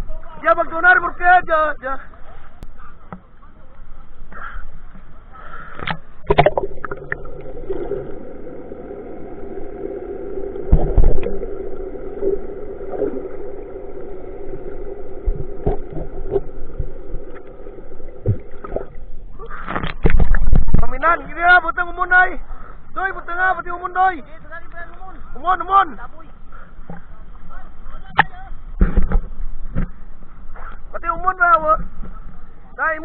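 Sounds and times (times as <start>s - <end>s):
boat engine hum underwater: 2.5s - 23.0s
splash: 5.8s - 20.9s
dull thumps: 18.2s - 19.0s.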